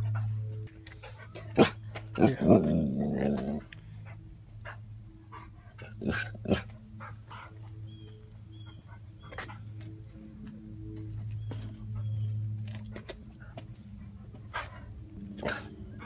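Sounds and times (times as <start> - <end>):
dog growling: 1.5 - 3.8, 5.8 - 6.8.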